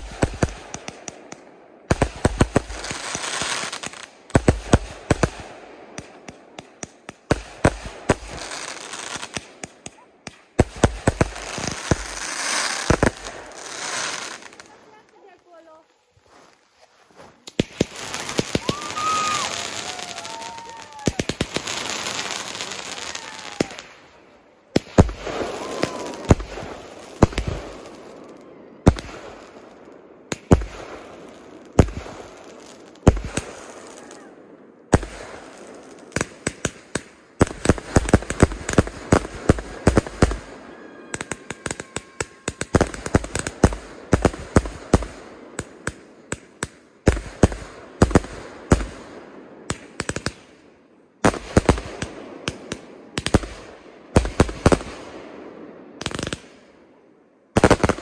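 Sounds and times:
fireworks bangs and booms: 0:00.0 - 0:15.7, 0:17.4 - 0:50.6, 0:51.2 - 0:56.7, 0:57.5 - 0:58.0
fireworks crackling: 0:00.0 - 0:56.7, 0:57.5 - 0:58.0
firework whistle: 0:18.4 - 0:24.0, 0:25.2 - 0:26.8, 0:39.7 - 0:43.6.

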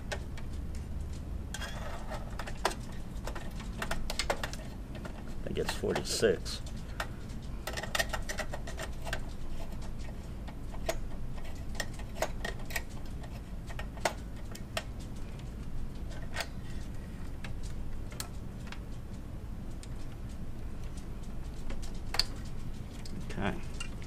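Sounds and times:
low background hum: 0:00.0 - 0:24.0.

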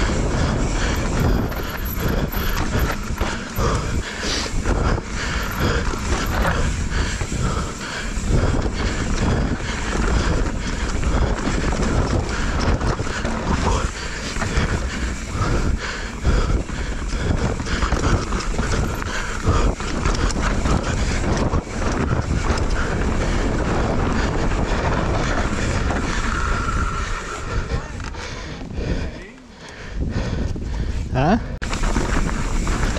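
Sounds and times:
tyres rolling over dirt and rocks: 0:00.0 - 0:28.7, 0:31.6 - 0:32.9
bike rattling and knocking: 0:00.0 - 0:29.4, 0:31.6 - 0:32.9
wind buffeting microphone: 0:00.0 - 0:32.9.

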